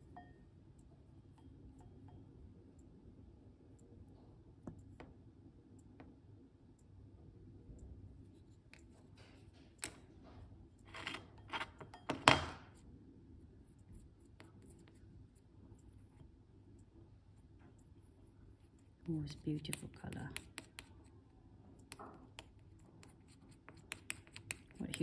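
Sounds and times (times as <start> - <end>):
metal tool ticking on ceramic dish: 0.0 - 0.4, 1.3 - 2.4.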